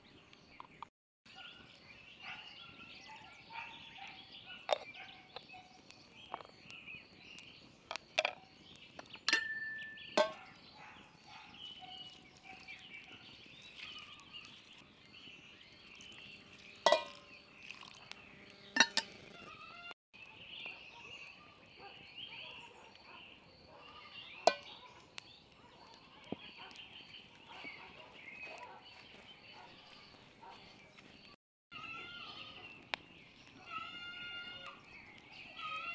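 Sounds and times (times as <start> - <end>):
birds chirping: 0.0 - 35.9
glass clinking on wood: 9.2 - 10.4, 16.9 - 17.3, 18.8 - 19.1.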